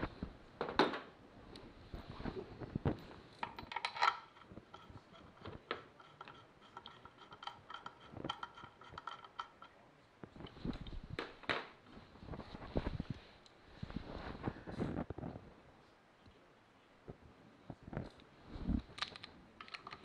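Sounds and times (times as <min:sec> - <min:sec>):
metal bolts clicking and clinking: 0:03.4 - 0:09.8.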